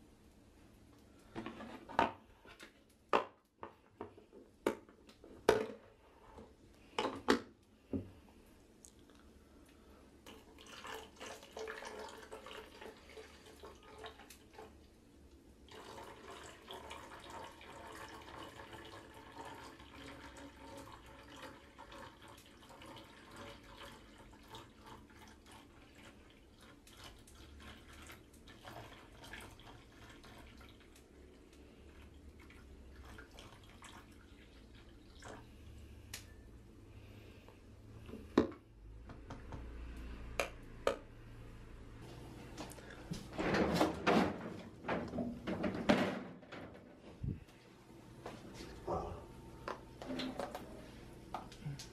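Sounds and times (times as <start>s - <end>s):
water trickling into plastic tray: 15.7s - 31.1s, 31.9s - 35.5s.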